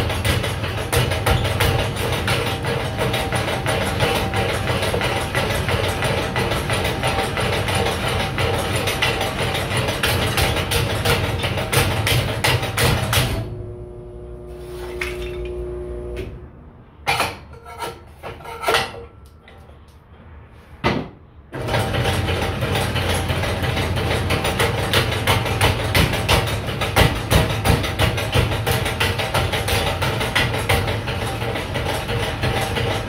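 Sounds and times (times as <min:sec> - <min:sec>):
steady hum: 0:13.1 - 0:16.9.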